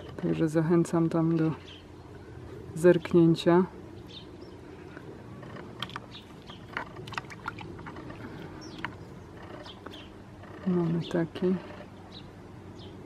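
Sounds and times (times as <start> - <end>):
low steady hum: 0.0 - 13.0
bird chirps: 8.4 - 10.2.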